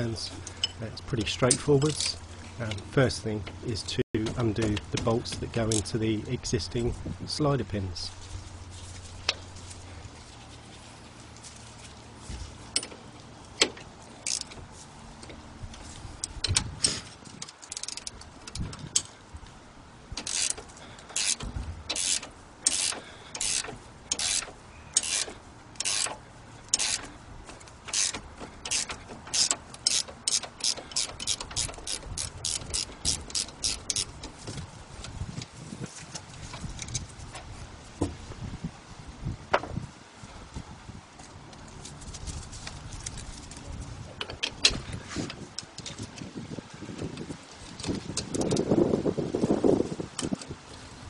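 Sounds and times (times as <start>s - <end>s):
ratchet spanner clicking: 13.7s - 14.6s, 16.2s - 19.1s, 20.1s - 34.3s.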